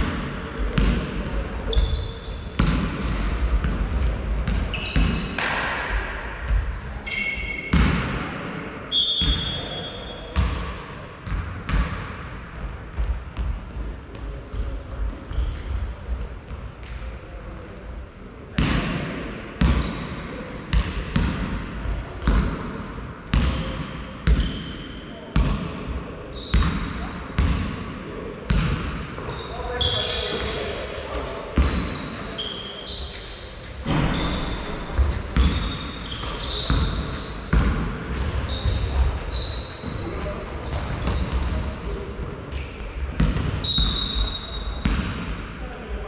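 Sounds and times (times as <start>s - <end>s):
basketball bouncing in a hall: 0.0s - 46.0s
shoes squeaking on floor: 1.6s - 3.3s, 4.6s - 6.1s, 6.7s - 7.7s, 14.6s - 16.2s, 29.2s - 30.6s, 31.6s - 37.6s, 38.2s - 44.8s.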